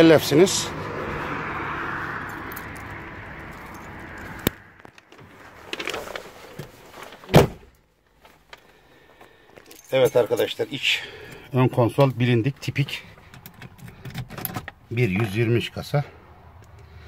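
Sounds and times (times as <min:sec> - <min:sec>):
rustling of person getting seated: 0:03.6 - 0:07.3
car door thump: 0:07.3 - 0:07.7.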